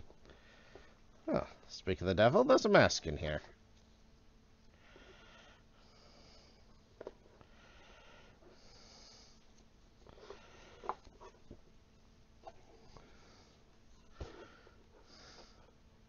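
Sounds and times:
faint breathing into microphone: 0:00.2 - 0:01.1, 0:04.6 - 0:06.8, 0:07.4 - 0:11.3, 0:12.8 - 0:15.8.

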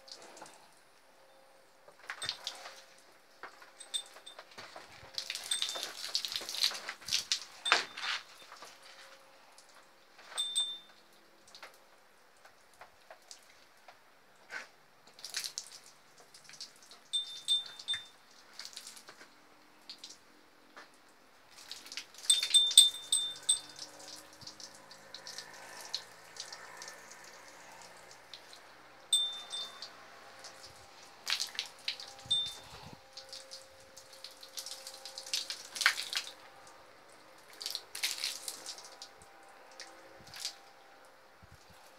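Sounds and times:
water splashing and dripping: 0:02.0 - 0:03.1, 0:05.0 - 0:08.7, 0:15.1 - 0:20.2, 0:20.8 - 0:36.5, 0:37.1 - 0:40.6
high ringing clinks: 0:03.7 - 0:04.5, 0:05.2 - 0:06.1, 0:07.6 - 0:08.6, 0:10.3 - 0:11.0, 0:17.2 - 0:18.2, 0:22.2 - 0:24.1, 0:29.1 - 0:30.0, 0:32.0 - 0:33.0.

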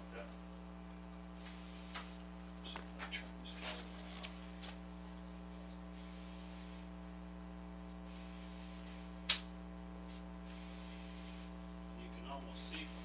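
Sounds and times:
electrical mains hum: 0:00.0 - 0:13.0
sharp click: 0:09.3 - 0:09.5.

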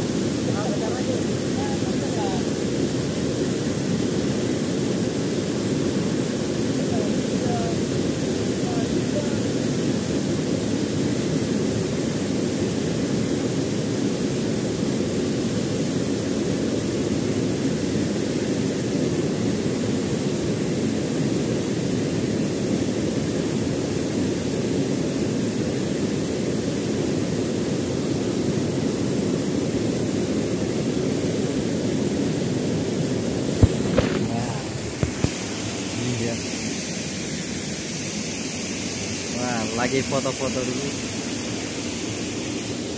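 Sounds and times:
waterfall rushing: 0:04.9 - 0:10.1, 0:32.2 - 0:42.9.

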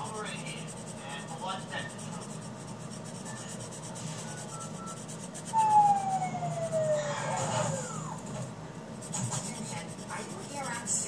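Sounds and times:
pencil rubbing on paper: 0:00.0 - 0:06.0, 0:09.0 - 0:11.0
siren-like tone gliding down: 0:05.5 - 0:08.2.

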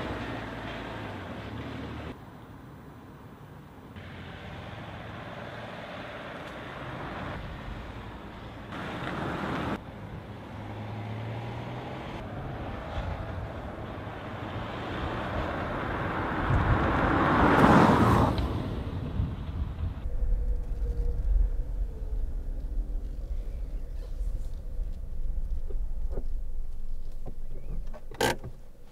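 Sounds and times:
car driving past: 0:20.0 - 0:28.9.

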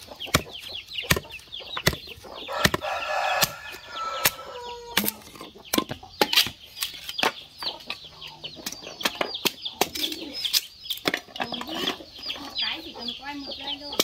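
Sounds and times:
high bird chirps: 0:00.0 - 0:14.0
machete splitting bamboo: 0:00.2 - 0:07.4.

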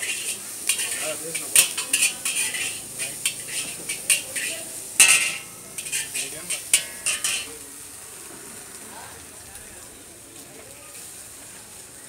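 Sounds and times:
metal ladle clanking on wok: 0:00.0 - 0:07.6
frying hiss: 0:00.0 - 0:12.0.

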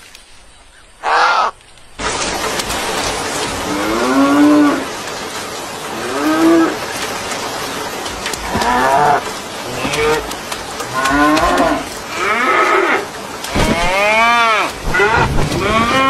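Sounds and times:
bird squawk: 0:01.0 - 0:01.6
cows mooing: 0:03.6 - 0:04.9, 0:08.4 - 0:16.0.

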